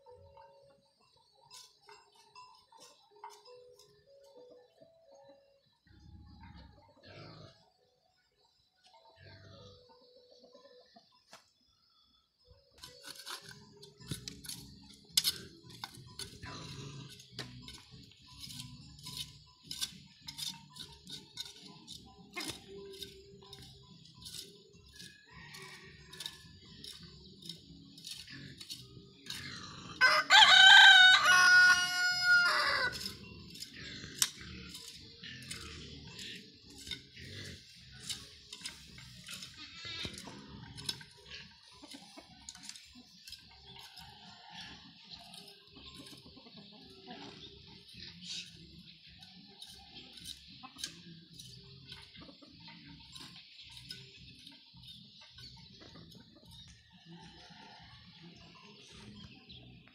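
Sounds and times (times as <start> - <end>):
hand hoe chopping dry soil: 12.8 - 16.4, 26.1 - 29.4, 32.9 - 37.1
rooster crowing: 25.0 - 26.4, 30.0 - 33.2.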